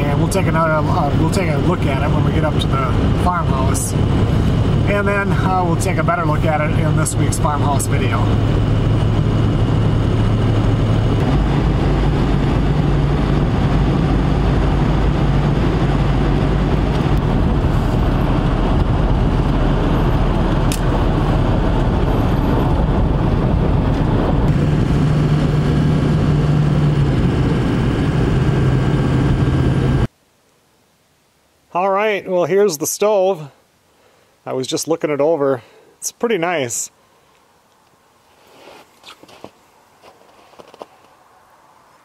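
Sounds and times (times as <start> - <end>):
low hum: 0.0 - 30.1
tyre and engine drone in cab: 0.0 - 30.1.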